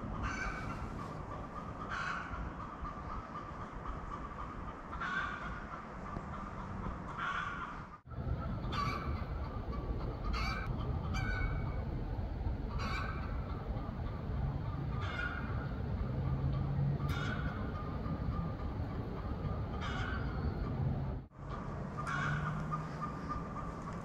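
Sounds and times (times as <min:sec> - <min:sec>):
bird calling: 0:00.0 - 0:24.0
steady low rumble: 0:08.0 - 0:24.0.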